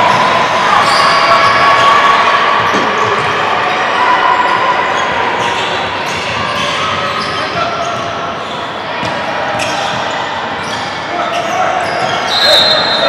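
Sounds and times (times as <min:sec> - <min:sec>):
gymnasium room noise: 0:00.0 - 0:13.0.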